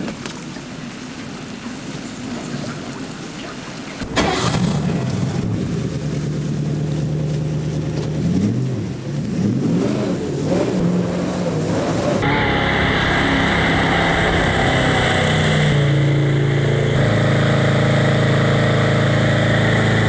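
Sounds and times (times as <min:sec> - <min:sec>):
boat engine revving: 0:04.0 - 0:20.0.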